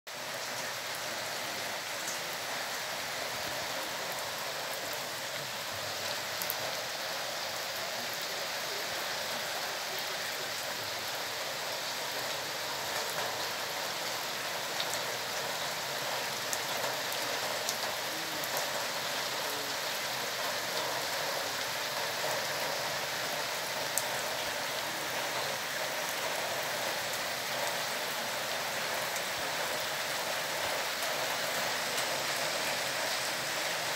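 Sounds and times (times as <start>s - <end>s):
heavy rain hissing: 0.1s - 33.9s.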